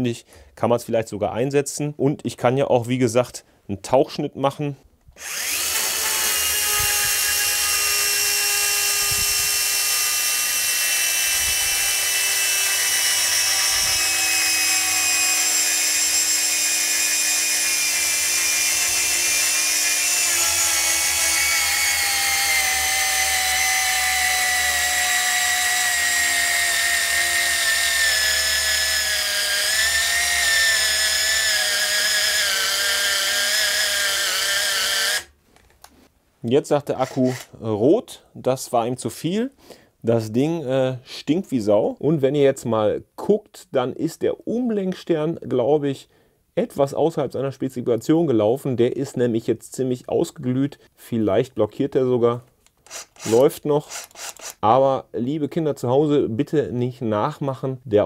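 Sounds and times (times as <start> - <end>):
power saw motor whine: 5.2 - 35.3.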